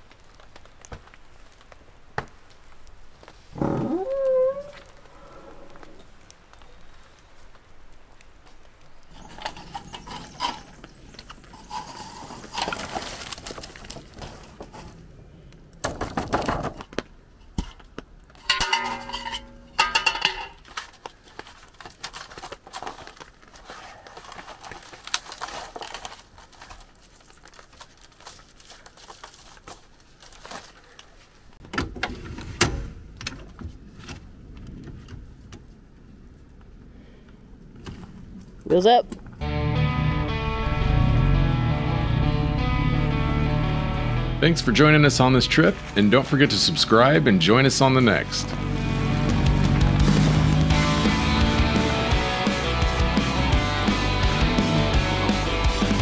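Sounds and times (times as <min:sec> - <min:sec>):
dishes and metal hardware rattling: 0:18.4 - 0:20.6.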